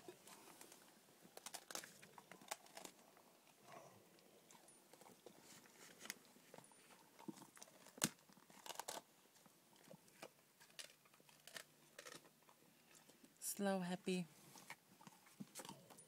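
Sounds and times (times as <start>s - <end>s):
bone cracking: 0.6s - 3.2s, 7.2s - 9.1s, 9.8s - 13.2s
dog chewing bone: 9.8s - 13.2s.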